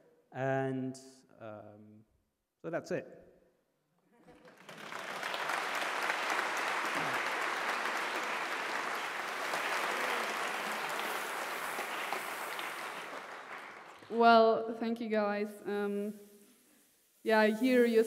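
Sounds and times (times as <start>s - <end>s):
audience applauding: 4.2s - 14.2s.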